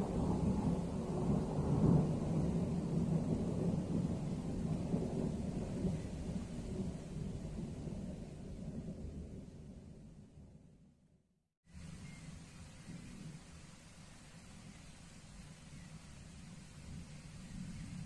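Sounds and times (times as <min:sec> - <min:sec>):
distant rolling thunder: 0:00.0 - 0:10.2.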